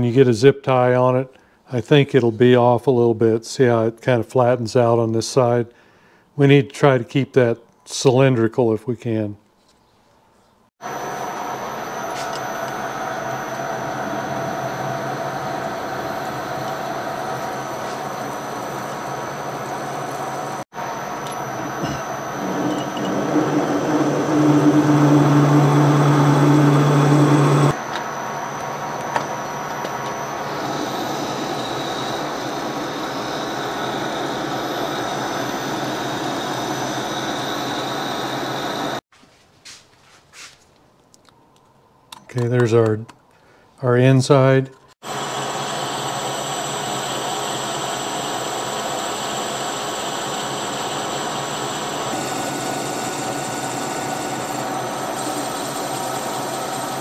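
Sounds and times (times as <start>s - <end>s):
thin high whine: 10.8s - 39.0s, 45.0s - 57.0s
metal lathe running: 10.9s - 39.0s, 45.1s - 57.0s
low droning tone: 11.8s - 17.8s, 21.0s - 27.8s.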